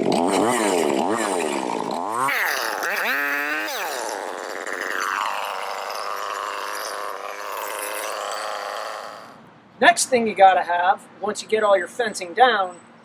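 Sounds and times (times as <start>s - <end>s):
chainsaw cutting wood: 0.0s - 9.4s.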